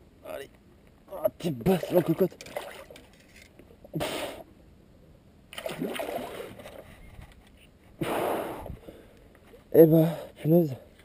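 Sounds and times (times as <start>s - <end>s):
seawater splashing: 5.6s - 6.8s.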